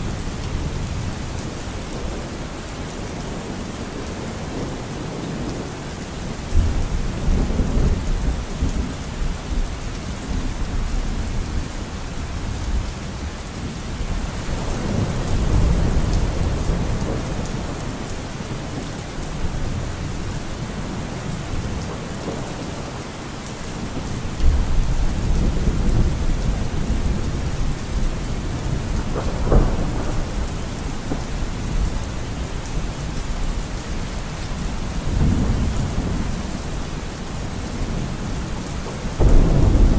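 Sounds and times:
steady rain: 0.0 - 39.9
rolling thunder: 24.0 - 32.3, 37.4 - 39.9
sharp thunder clap: 39.2 - 39.9.

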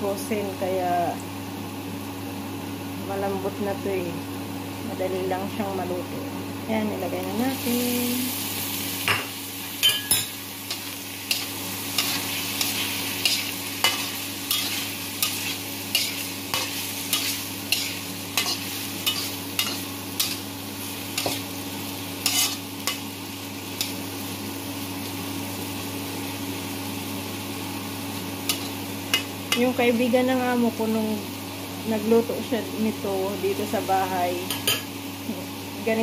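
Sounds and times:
food sizzling: 0.0 - 36.0.

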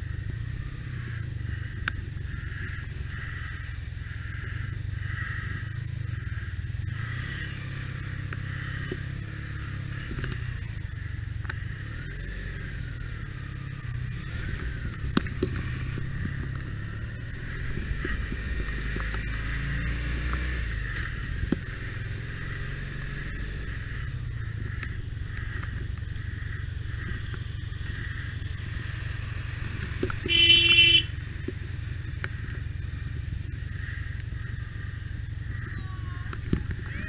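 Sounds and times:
motorcycle engine running: 0.0 - 37.0
road and wind noise: 0.0 - 37.0
vehicle horn honk: 30.3 - 31.2.

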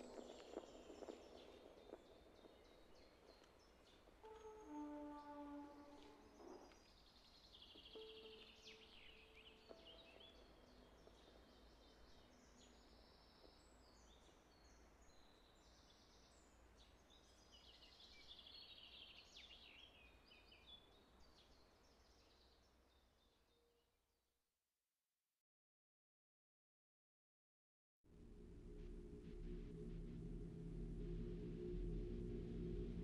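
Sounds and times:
low steady hum: 28.1 - 33.0.

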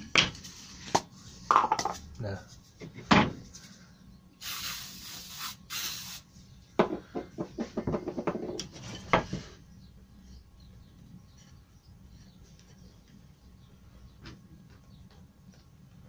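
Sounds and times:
wooden pieces knocking: 1.0 - 2.0, 6.8 - 9.3
aerosol spray hisses: 4.4 - 6.3.

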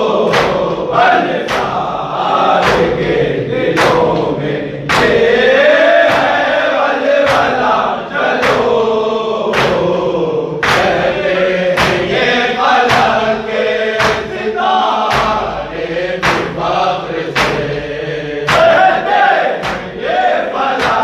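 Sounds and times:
men chanting together: 0.0 - 21.0
chest-beating strikes: 11.8 - 20.0.

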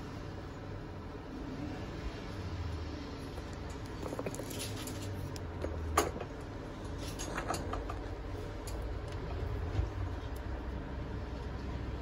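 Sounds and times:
low steady hum: 0.0 - 12.0
handling clicks and rustles: 3.2 - 10.6.

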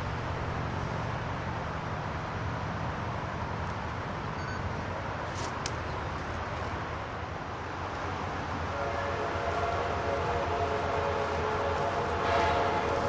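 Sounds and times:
outdoor background rumble: 0.0 - 13.0.

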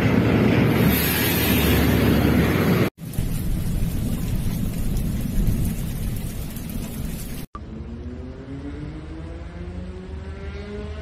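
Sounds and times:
heavy rain and water washing: 0.6 - 7.5
deep rumble: 1.8 - 7.5.

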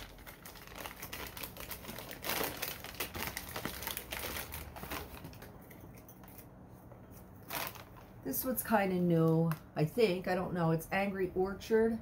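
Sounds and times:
paper wrapping crinkling: 0.0 - 6.5, 7.2 - 8.2.

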